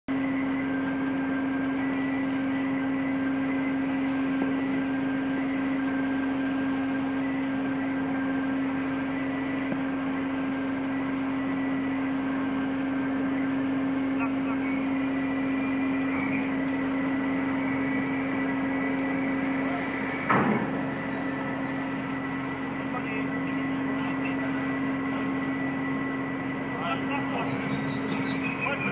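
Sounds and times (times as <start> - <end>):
ship machinery droning hum: 0.1 - 28.9.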